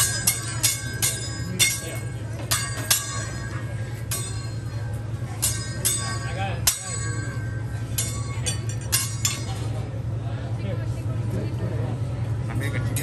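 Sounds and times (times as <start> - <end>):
metal spatula clinking on griddle: 0.0 - 9.8
steady low hum: 0.0 - 13.0.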